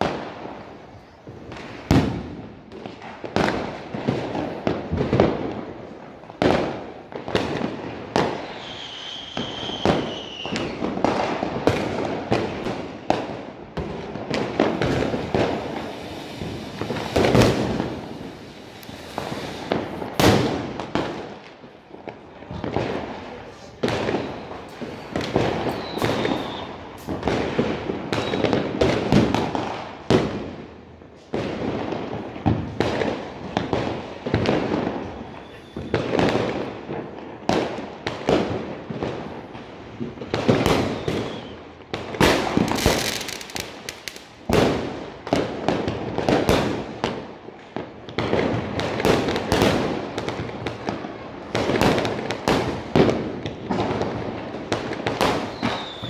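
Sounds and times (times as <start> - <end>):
fireworks bangs and crackles: 0.0 - 56.0
firework whistles: 8.2 - 13.3, 14.6 - 20.5, 24.0 - 29.1, 34.3 - 36.5, 40.3 - 44.2, 55.2 - 56.0.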